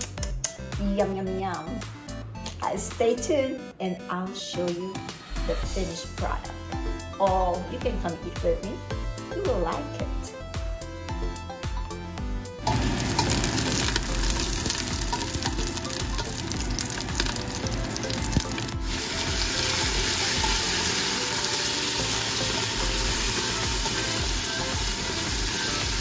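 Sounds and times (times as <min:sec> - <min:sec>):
food sizzling in hot oil: 0:12.6 - 0:26.0.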